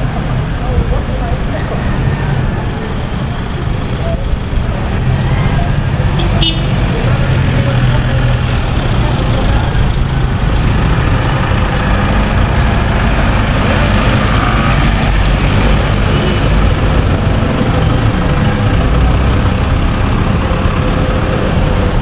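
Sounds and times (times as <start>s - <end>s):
vehicle engines rumbling: 0.0s - 22.0s.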